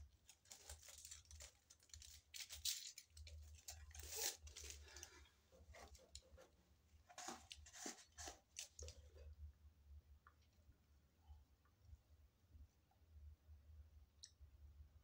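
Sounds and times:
low steady hum: 0.0s - 15.0s
paper wrapper tearing and crinkling: 0.2s - 5.2s, 7.1s - 9.0s.

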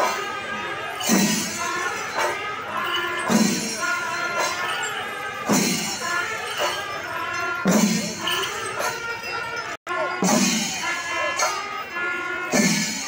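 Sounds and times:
held wind instrument notes: 0.0s - 13.0s
drum stroke with cymbal crash: 10.2s - 10.8s.

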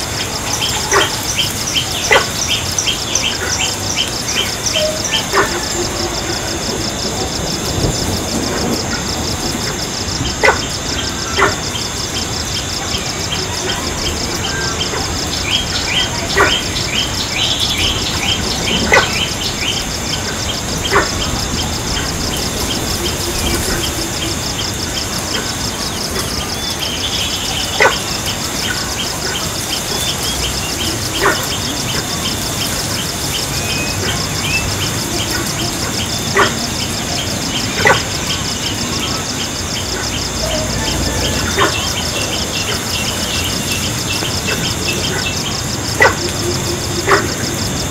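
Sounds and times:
birds chirping: 0.0s - 47.9s.

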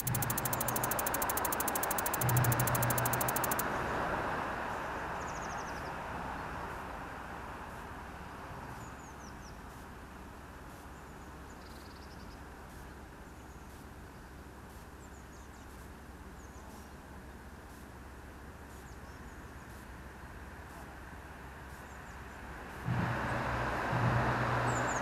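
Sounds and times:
small birds chirping: 0.0s - 3.6s.

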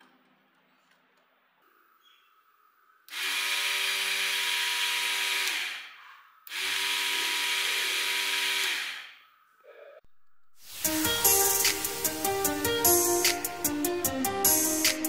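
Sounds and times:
mixer grinder motor spinning: 3.1s - 9.2s.

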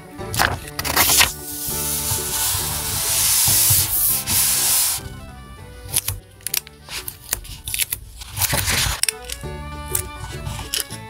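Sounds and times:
soft background music: 0.0s - 11.0s
paper handling clicks and taps: 0.3s - 5.0s, 5.9s - 9.4s
palms rubbing paper: 0.4s - 5.3s, 6.8s - 9.0s.

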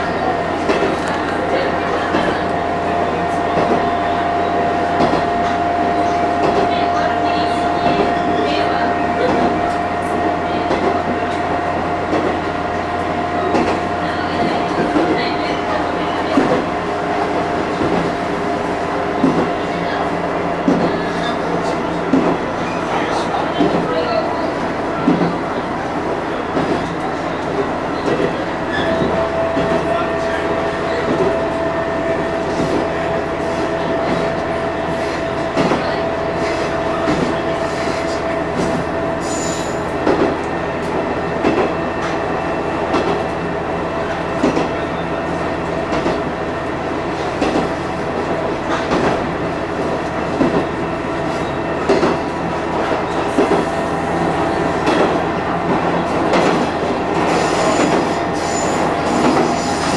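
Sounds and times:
railcar engine drone: 0.0s - 59.9s
wheel squeal: 57.3s - 59.9s.

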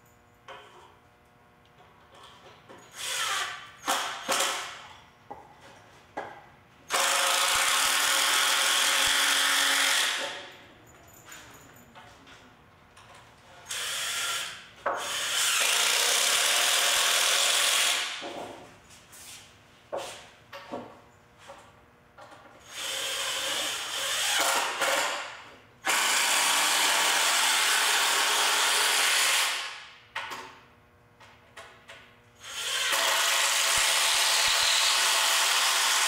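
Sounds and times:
impact driver driving screws into wood: 2.9s - 4.8s, 6.9s - 10.5s, 13.7s - 18.2s, 22.7s - 29.8s, 32.4s - 36.0s.

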